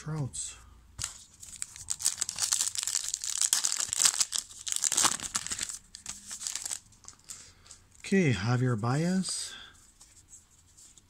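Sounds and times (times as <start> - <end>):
foil wrapper tearing and crinkling: 1.5 - 6.8.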